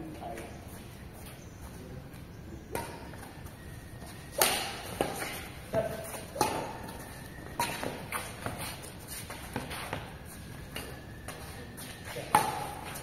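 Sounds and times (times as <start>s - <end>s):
light footsteps on court: 0.0s - 13.0s
rackets striking shuttlecock: 2.7s - 3.4s, 4.2s - 11.4s, 12.0s - 13.0s.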